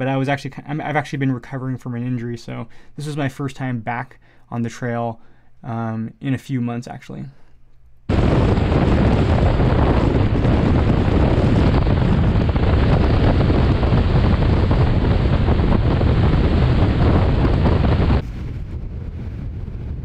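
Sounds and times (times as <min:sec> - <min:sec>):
wind buffeting microphone: 0:08.1 - 0:20.0.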